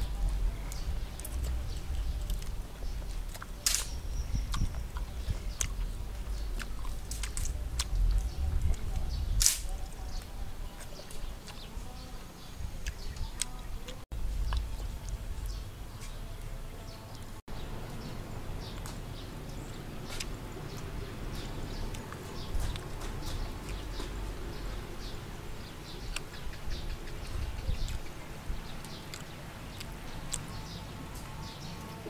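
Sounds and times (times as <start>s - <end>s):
low rumble: 0.0s - 10.8s, 14.1s - 16.8s
person chewing and smacking: 0.7s - 9.1s, 12.8s - 15.2s, 28.8s - 30.6s.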